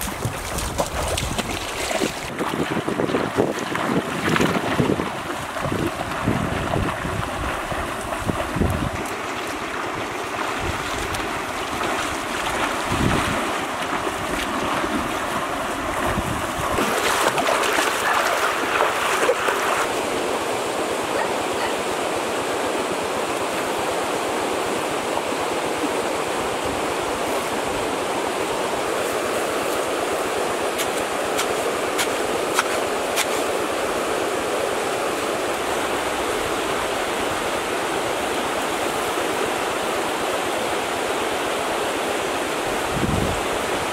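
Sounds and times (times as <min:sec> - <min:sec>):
low wind buffeting: 0:00.0 - 0:17.5, 0:42.7 - 0:43.8
splashing and wading in water: 0:00.0 - 0:20.2
river water rushing: 0:00.0 - 0:43.9.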